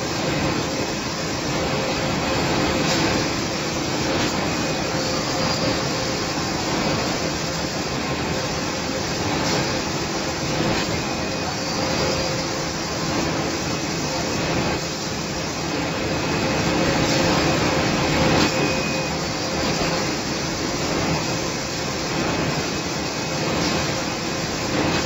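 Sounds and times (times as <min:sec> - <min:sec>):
machine whirring: 0:00.0 - 0:25.0.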